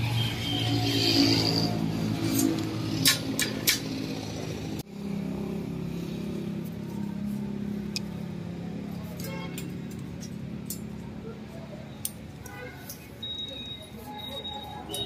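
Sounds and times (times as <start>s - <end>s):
pliers twisting wire clicks: 9.2s - 11.0s.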